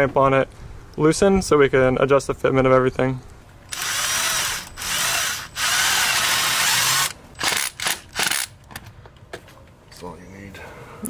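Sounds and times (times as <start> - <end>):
cordless power tool motor: 3.7 - 8.5.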